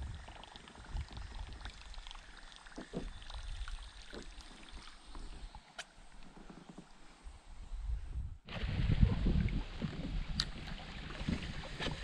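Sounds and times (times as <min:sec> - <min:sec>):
paddle splashing water: 0:08.5 - 0:12.0.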